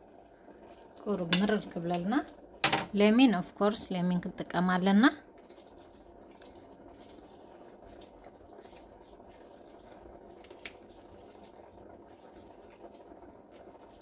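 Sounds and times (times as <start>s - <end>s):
juice dripping: 0.0s - 3.1s, 4.5s - 14.0s
small wet clicks: 5.3s - 14.0s.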